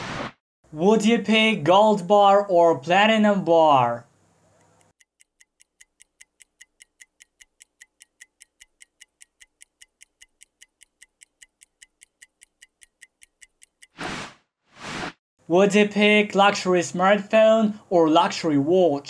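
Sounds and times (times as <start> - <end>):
clock-like ticking: 4.6 - 14.0.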